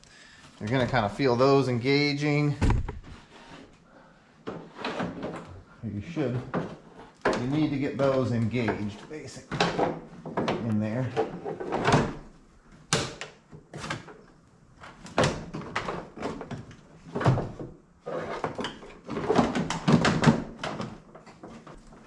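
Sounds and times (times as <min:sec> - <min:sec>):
plastic cover knocking and clunking: 0:02.6 - 0:03.2, 0:18.4 - 0:22.0.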